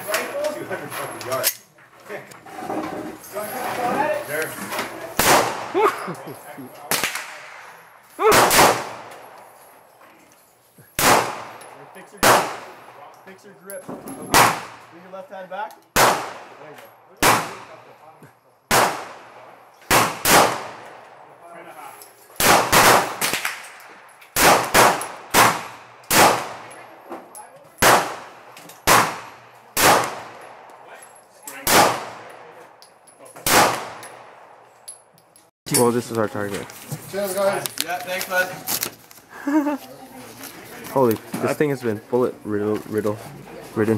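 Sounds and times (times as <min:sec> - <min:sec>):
pistol shots: 0:05.2 - 0:05.8, 0:06.9 - 0:09.4, 0:11.0 - 0:13.0, 0:14.3 - 0:14.9, 0:15.9 - 0:17.8, 0:18.7 - 0:21.1, 0:22.4 - 0:26.8, 0:27.8 - 0:30.7, 0:31.6 - 0:32.6, 0:33.4 - 0:34.5.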